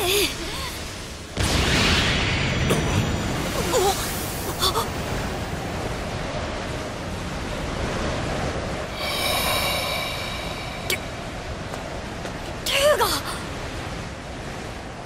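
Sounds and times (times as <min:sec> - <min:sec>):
rushing wind-like energy noise: 0:00.8 - 0:12.8.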